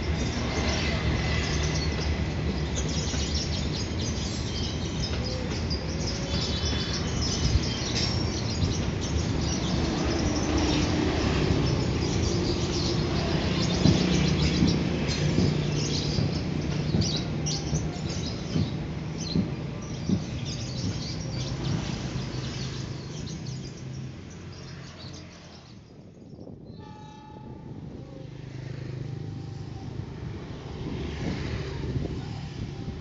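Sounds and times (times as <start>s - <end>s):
passenger train rolling on rails: 0.0s - 33.0s
train horn tone: 26.8s - 28.3s.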